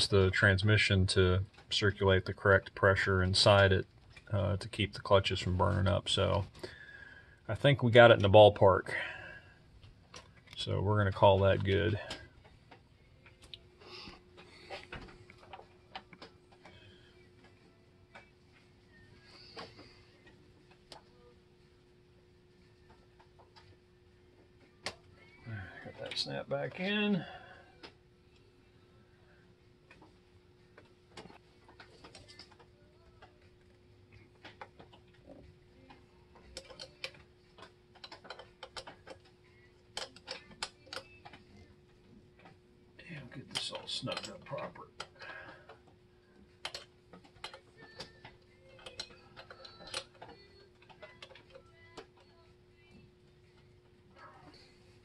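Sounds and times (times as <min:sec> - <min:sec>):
faint steady hum: 0:00.0 - 0:55.0
faint clicks and taps: 0:09.8 - 0:21.9, 0:29.7 - 0:55.0
metal parts clicking: 0:36.4 - 0:39.3, 0:39.9 - 0:41.4, 0:46.5 - 0:52.4.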